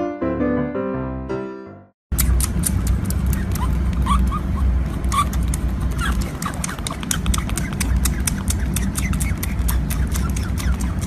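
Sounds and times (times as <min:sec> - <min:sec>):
otter pup suckling clicks: 0:02.1 - 0:11.0
low steady rumble: 0:02.2 - 0:11.0.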